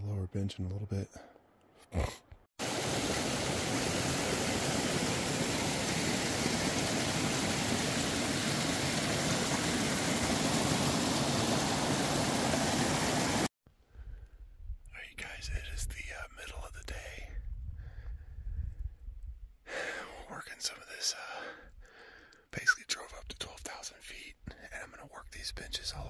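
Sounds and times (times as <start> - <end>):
stream splashing over rocks: 2.6 - 13.5.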